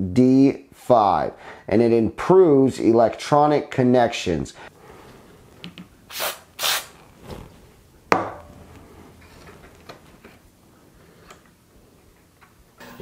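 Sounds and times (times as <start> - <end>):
aerosol spray hisses: 6.1 - 6.9.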